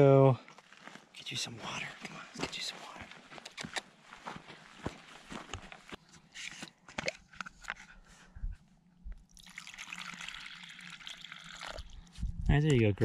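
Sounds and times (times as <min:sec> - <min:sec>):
water pouring in a stream: 0:09.4 - 0:12.1.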